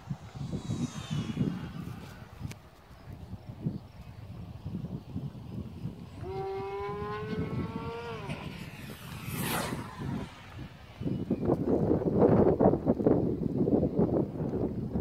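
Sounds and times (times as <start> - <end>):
electric motor and propeller whine: 0.0 - 2.8, 5.2 - 12.0
rushing whoosh: 0.0 - 3.4, 5.8 - 12.2
wind buffeting microphone: 0.0 - 15.0.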